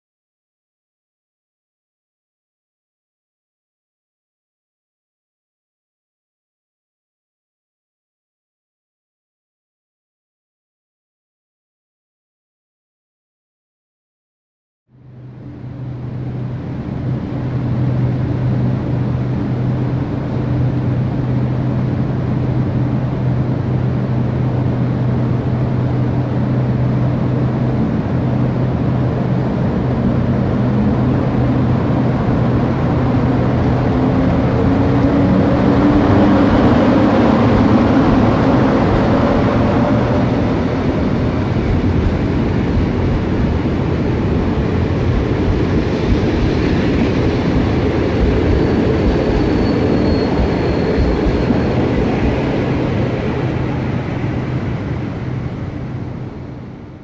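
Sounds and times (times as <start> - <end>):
electric locomotive hum: 14.9 - 57.0
rising pitched tones: 28.0 - 43.6.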